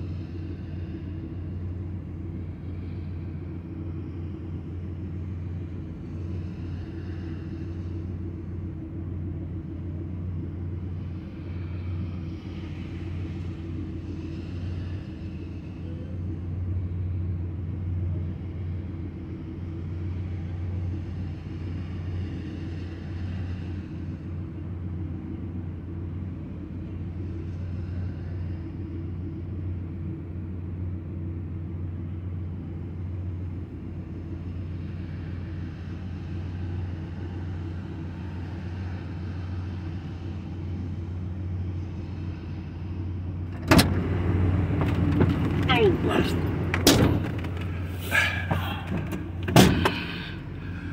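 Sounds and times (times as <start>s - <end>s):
car engine idling: 34.4s - 50.9s.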